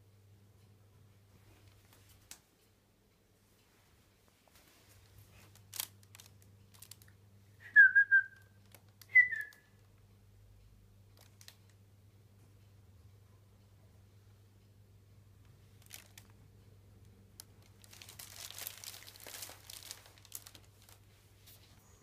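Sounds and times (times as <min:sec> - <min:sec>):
person whistling short notes: 0:07.6 - 0:08.5, 0:09.1 - 0:09.6.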